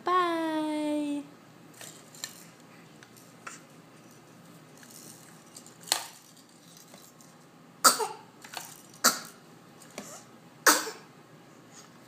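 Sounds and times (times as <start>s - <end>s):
baby sneezing: 7.8s - 8.2s.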